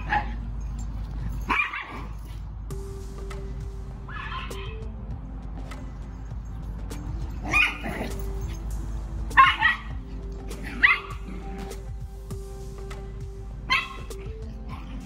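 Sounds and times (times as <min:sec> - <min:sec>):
dog yipping: 0:00.0 - 0:00.5, 0:01.4 - 0:02.2, 0:04.1 - 0:04.8, 0:07.4 - 0:08.6, 0:09.3 - 0:11.4, 0:13.7 - 0:15.0
quiet background music: 0:00.0 - 0:15.0.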